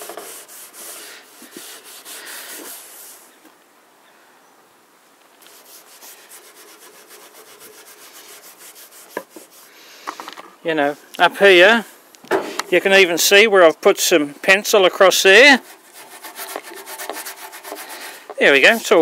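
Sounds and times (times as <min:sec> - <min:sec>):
steel wool scrubbing wood: 0:00.0 - 0:03.4, 0:05.4 - 0:09.8, 0:14.7 - 0:19.0.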